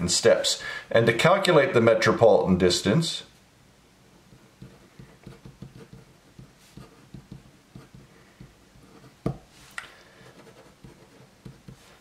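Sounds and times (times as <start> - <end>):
pen scratching on paper: 4.3 - 9.4, 10.2 - 12.0.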